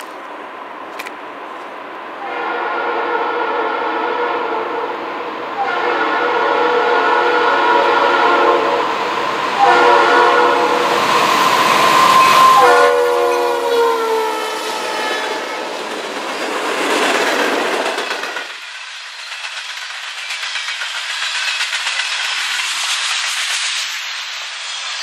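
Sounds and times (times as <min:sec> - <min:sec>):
train wheels rolling on rails: 0:00.0 - 0:25.0
train air horn blasts: 0:02.2 - 0:08.9, 0:09.5 - 0:15.8.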